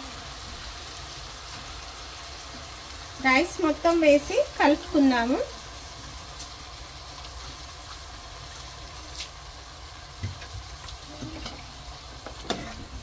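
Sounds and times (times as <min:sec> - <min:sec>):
food sizzling in oil: 0:00.0 - 0:13.0.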